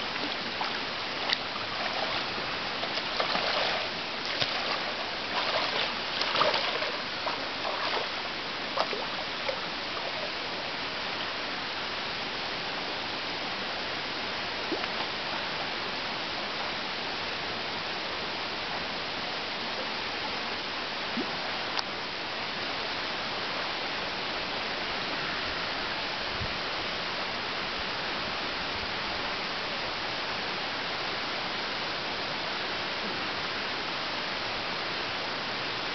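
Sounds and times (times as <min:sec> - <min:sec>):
running water: 0:00.0 - 0:16.3
otters splashing in water: 0:00.2 - 0:08.2.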